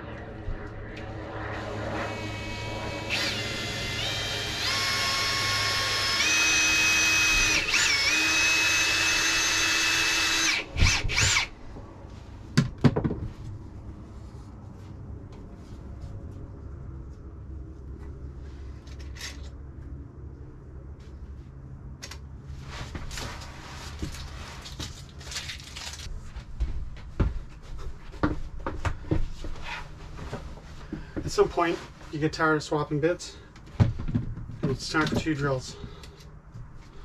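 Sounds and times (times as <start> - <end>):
cordless drill drilling through metal: 1.6 - 11.5.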